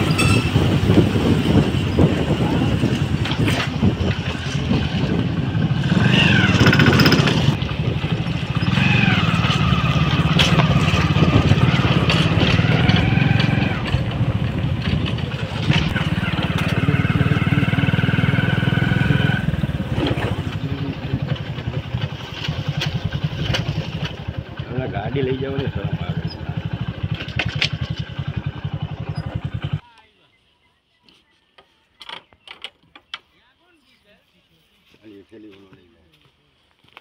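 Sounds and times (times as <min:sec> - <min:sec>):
higher gliding tones: 0:00.0 - 0:03.1
motorcycle engine running: 0:00.0 - 0:29.8.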